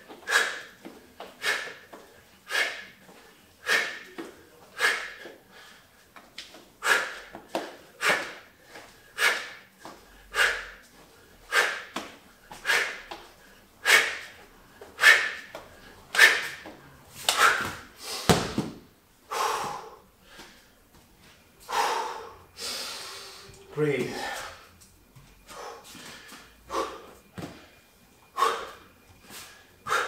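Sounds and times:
heavy breathing: 0:00.1 - 0:06.1, 0:06.8 - 0:18.4, 0:19.2 - 0:20.8, 0:21.6 - 0:24.8, 0:25.5 - 0:30.0
sandbag thud on mat: 0:17.6 - 0:18.8
man exhaling forcefully: 0:19.3 - 0:20.0.

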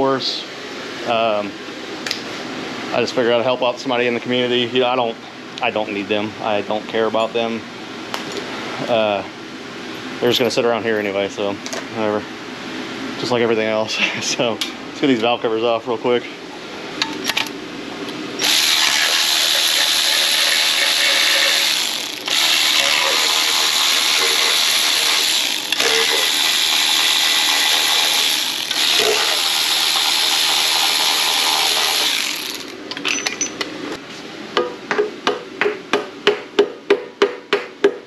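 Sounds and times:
cordless electric ratchet running: 0:18.4 - 0:32.8.

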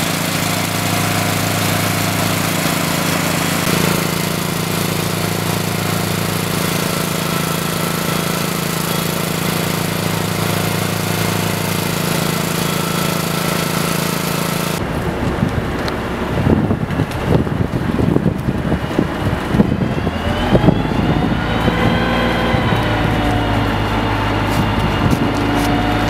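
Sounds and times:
engine running steadily: 0:00.0 - 0:26.0.

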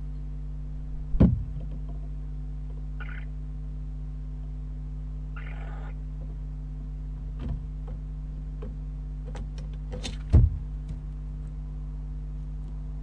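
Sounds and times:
steady low hum: 0:00.0 - 0:13.0
thump in wooden box: 0:01.1 - 0:01.7, 0:10.0 - 0:10.7.

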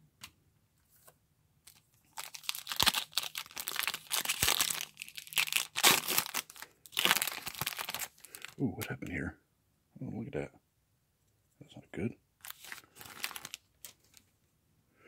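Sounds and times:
foil wrapper crinkling and tearing: 0:01.7 - 0:08.6, 0:12.4 - 0:14.2.

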